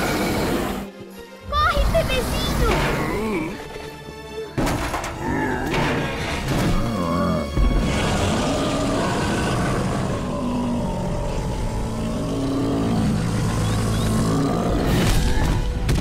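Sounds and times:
low rumbling growl and roar: 5.2 - 15.9.

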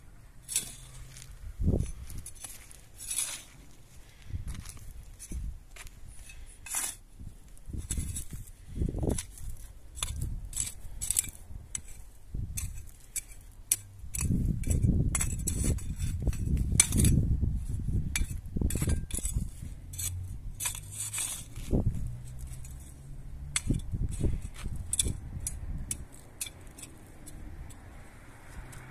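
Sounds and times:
metal blade clinking on stones: 0.4 - 1.0, 10.0 - 12.0, 18.1 - 21.5, 22.3 - 27.8
hand spade scraping stony soil: 0.4 - 28.9.

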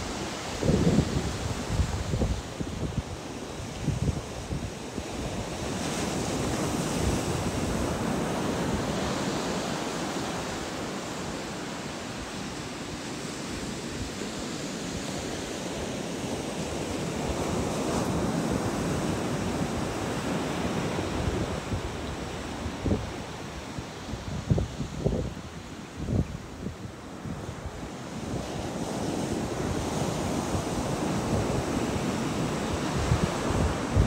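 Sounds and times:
wind on microphone: 0.0 - 34.0
ocean surf breaking: 5.1 - 25.7.

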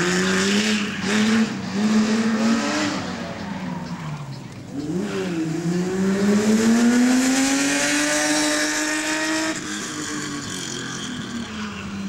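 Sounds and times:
car engine revving hard: 0.0 - 3.2, 4.8 - 9.9.

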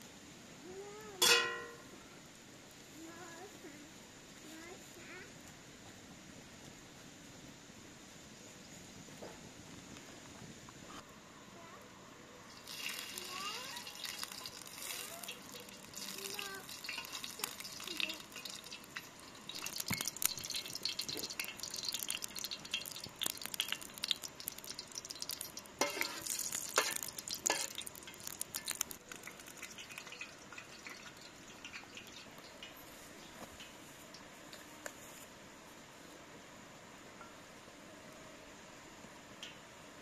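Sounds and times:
butter sizzling in a frying pan: 12.5 - 32.8.

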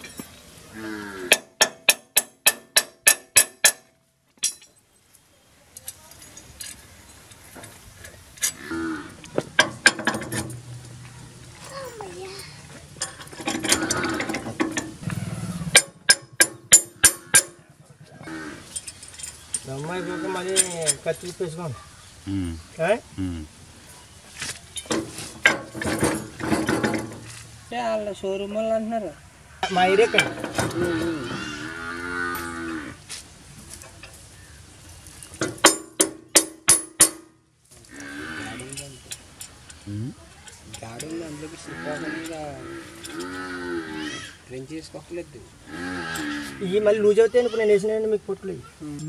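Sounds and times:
metal scraping and rattling: 5.8 - 21.6, 24.4 - 27.7, 29.6 - 45.0
cow mooing: 8.6 - 9.2, 29.9 - 33.0, 37.9 - 38.8, 41.6 - 44.4, 45.7 - 46.8
sharp metallic clicks: 13.0 - 17.6.

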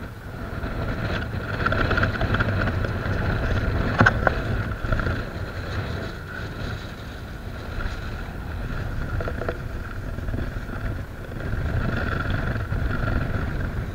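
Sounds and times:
wind buffeting microphone: 0.0 - 13.9.

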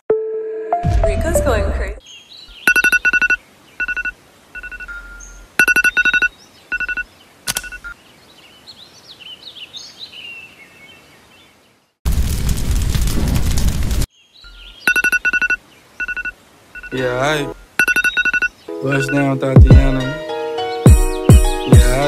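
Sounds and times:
birds chirping: 2.0 - 12.0, 14.1 - 22.0
phone alarm beeping: 2.6 - 8.0, 14.5 - 19.4
loud music: 19.6 - 22.0.

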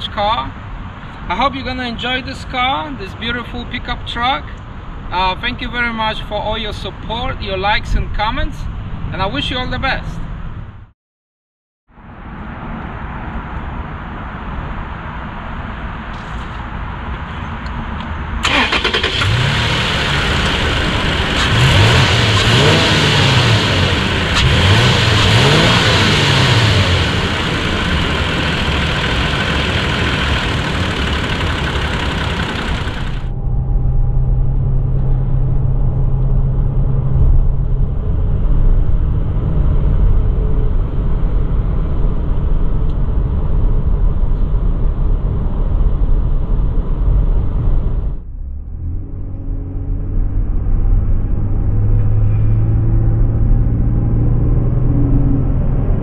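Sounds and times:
engine revving: 18.4 - 33.7, 48.2 - 56.0
truck driving rumble inside cabin: 19.3 - 56.0.

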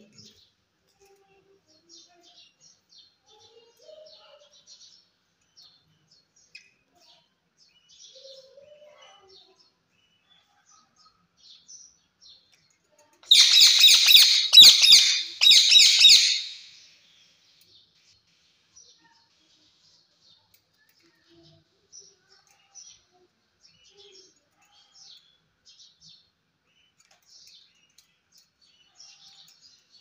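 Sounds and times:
parakeet screeching: 13.3 - 16.8
parakeet chirping: 13.3 - 16.9.

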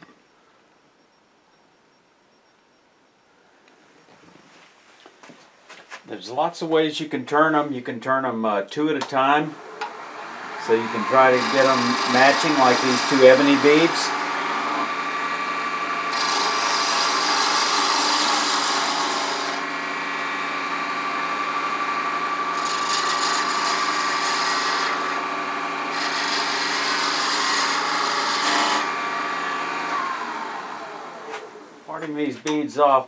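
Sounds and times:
wood lathe hum: 9.5 - 31.9
chisel cutting hiss: 9.8 - 19.8, 22.4 - 25.3, 25.9 - 30.0.

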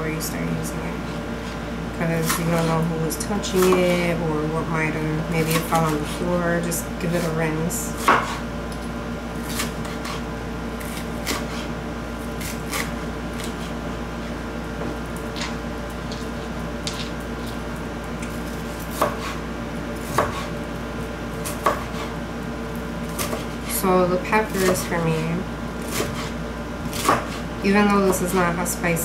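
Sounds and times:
knife chopping on cutting board: 8.0 - 8.4, 9.4 - 10.2, 10.8 - 11.7, 18.9 - 19.4, 20.0 - 20.5, 21.4 - 22.1, 23.2 - 23.6, 25.8 - 26.3, 26.9 - 27.4.

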